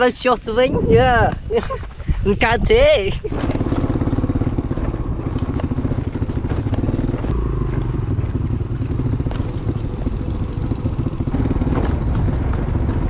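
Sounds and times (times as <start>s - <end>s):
small motorcycle engine running: 3.1s - 13.0s.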